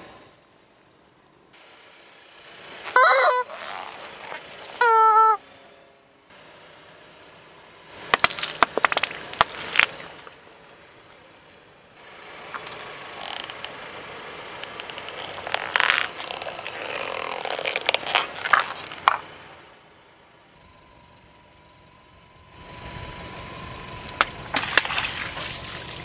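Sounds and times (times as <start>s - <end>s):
plastic cracking under car tyre: 8.0s - 10.4s, 12.5s - 13.8s, 14.6s - 19.3s, 23.8s - 26.0s
tyre crunching on asphalt: 8.0s - 10.4s, 14.5s - 19.4s, 23.4s - 26.0s.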